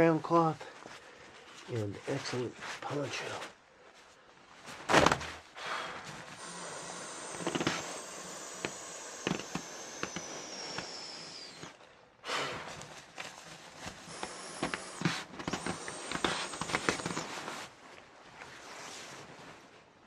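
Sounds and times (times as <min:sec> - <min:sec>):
air hissing through valve: 0:06.4 - 0:11.7, 0:14.1 - 0:17.5.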